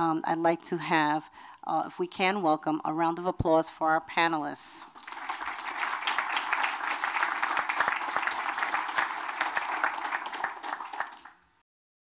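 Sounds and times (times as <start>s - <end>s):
audience applauding: 4.9s - 11.5s.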